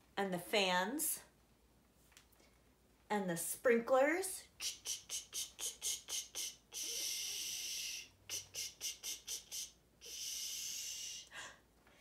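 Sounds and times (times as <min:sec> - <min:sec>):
woman making ticking mouth sounds: 0:04.6 - 0:11.3
woman hissing with mouth: 0:04.6 - 0:11.5.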